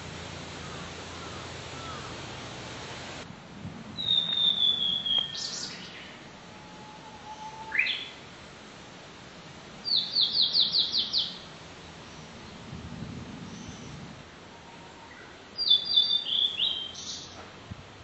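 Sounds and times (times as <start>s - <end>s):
bird singing: 0.6s - 2.2s, 4.0s - 8.2s, 9.9s - 11.4s, 14.6s - 17.4s.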